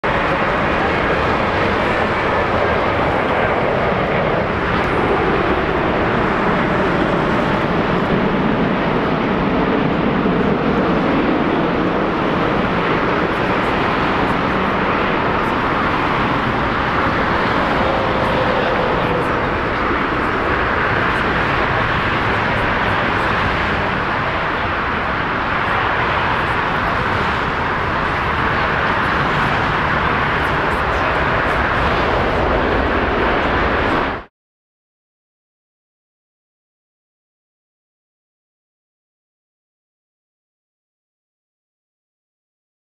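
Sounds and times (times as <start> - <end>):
jet engines rushing: 0.0 - 34.3.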